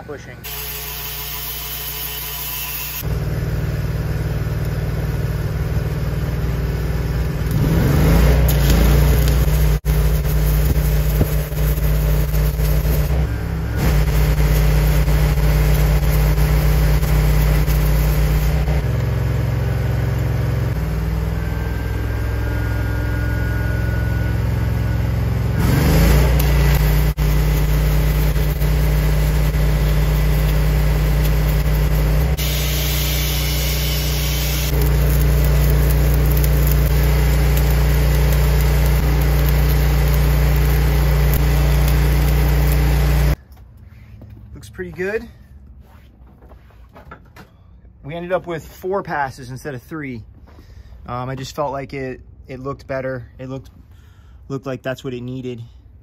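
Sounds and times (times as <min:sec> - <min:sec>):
welder engine running: 0:00.0 - 0:43.4
welding arc hissing and crackling: 0:00.5 - 0:03.0, 0:07.4 - 0:20.3, 0:25.6 - 0:43.4.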